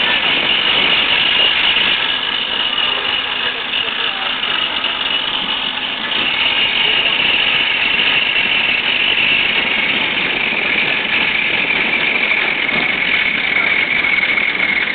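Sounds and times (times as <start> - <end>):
machine drone with high whine: 0.0 - 14.9.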